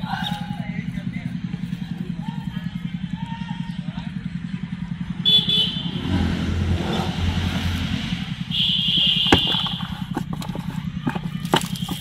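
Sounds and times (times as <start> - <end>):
small engine running: 7.5 - 12.0.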